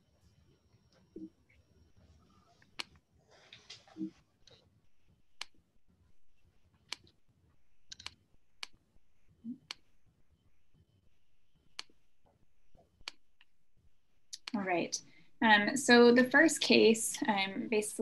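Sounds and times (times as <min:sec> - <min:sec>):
computer mouse clicking: 0:05.4 - 0:05.6, 0:06.9 - 0:07.2, 0:07.9 - 0:08.8, 0:11.6 - 0:13.6.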